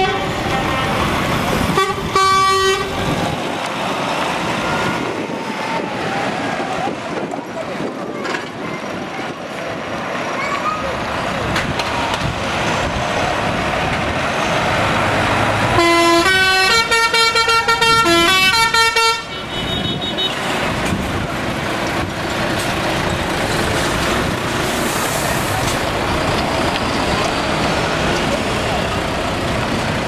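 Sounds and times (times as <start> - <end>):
diesel truck engines running: 0.0 - 30.0
musical air horn: 1.8 - 3.0, 15.7 - 20.4.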